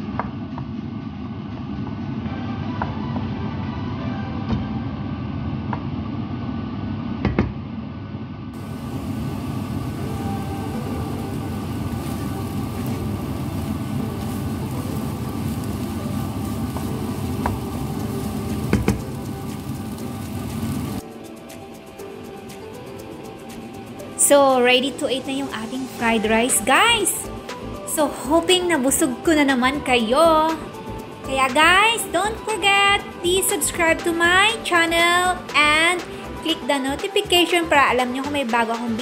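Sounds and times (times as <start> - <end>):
low rumble of kitchen noise: 0.0 - 32.4
rice stir-frying in pan: 8.6 - 21.1.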